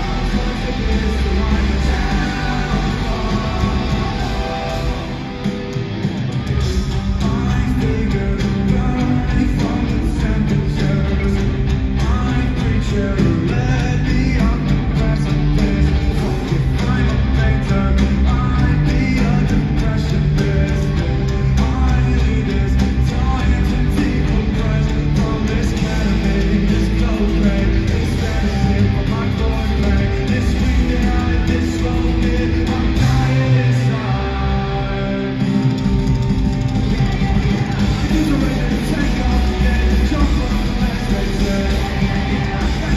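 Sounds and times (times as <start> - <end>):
person singing: 0.0 - 5.8, 6.6 - 42.9
live rock band playing: 0.0 - 42.9.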